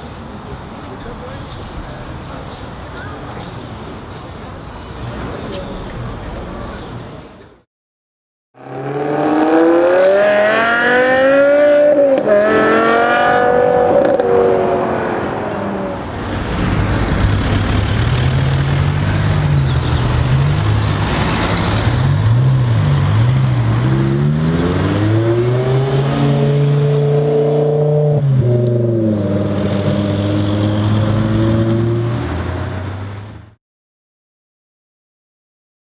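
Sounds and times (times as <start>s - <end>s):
car engine accelerating: 8.6s - 33.6s.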